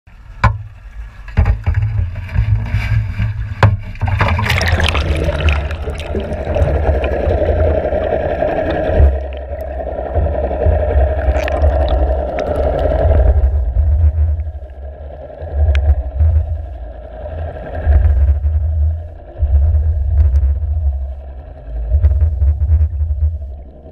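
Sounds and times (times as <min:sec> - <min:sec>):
low rumble: 0:00.2 - 0:23.9
underwater rushing: 0:00.2 - 0:23.9
splash into sea: 0:02.3 - 0:13.7.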